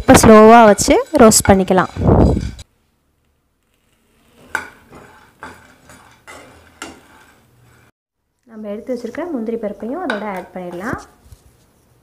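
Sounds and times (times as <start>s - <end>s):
spatula scraping a pan: 0.0s - 2.7s, 3.6s - 8.0s
spatula clattering through nuts: 0.1s - 2.7s, 4.2s - 7.9s.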